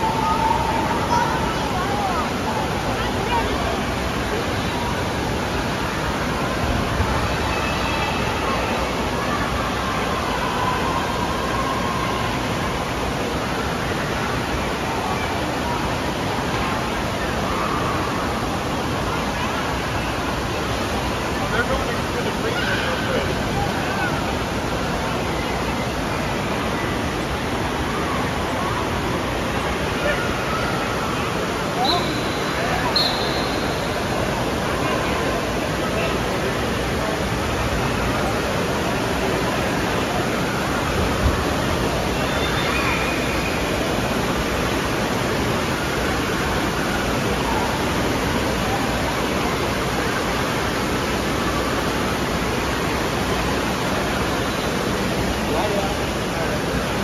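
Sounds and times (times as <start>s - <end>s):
water rushing and splashing: 0.0s - 57.0s.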